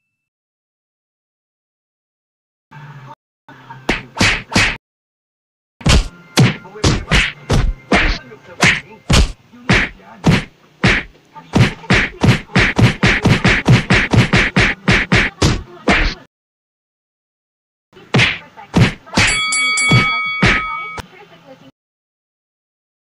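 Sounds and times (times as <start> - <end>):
punch and whack sound effects: 3.9 - 4.8, 5.8 - 16.3, 18.1 - 19.3, 19.9 - 20.7.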